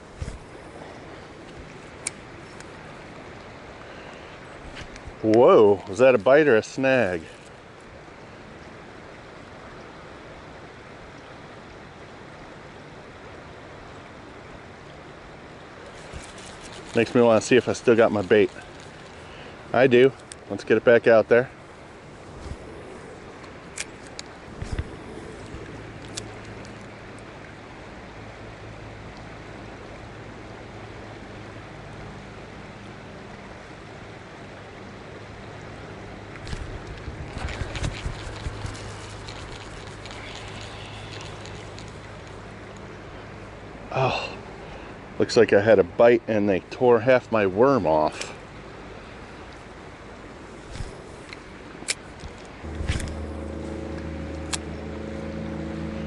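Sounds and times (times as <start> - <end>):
fast-flowing river current: 0.0 - 56.0
low hum: 21.6 - 28.2, 52.6 - 56.0.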